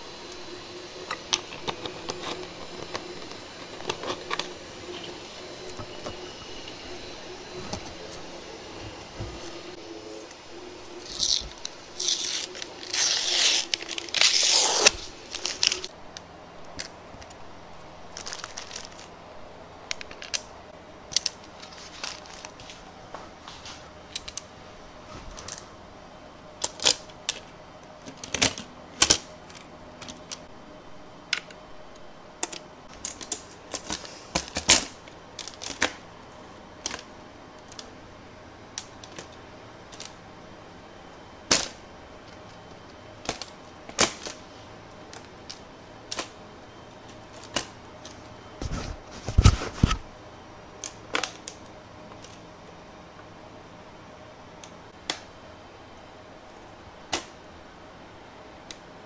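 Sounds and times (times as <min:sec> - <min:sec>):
paper bag crinkling: 0:00.3 - 0:15.9, 0:18.0 - 0:19.1.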